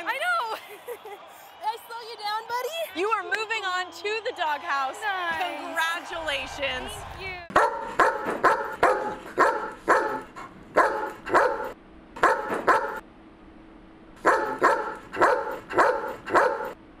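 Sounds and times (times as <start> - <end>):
dog barking: 7.5 - 13.0, 14.2 - 16.8.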